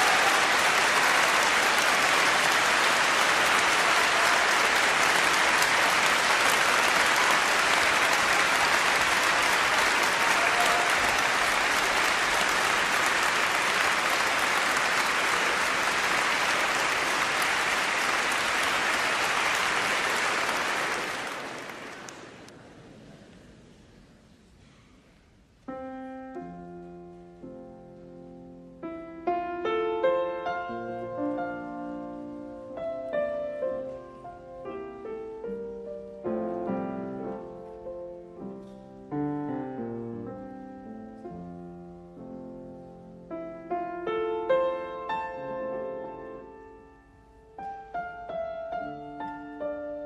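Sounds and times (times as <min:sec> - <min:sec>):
audience applauding: 0:00.0 - 0:22.5.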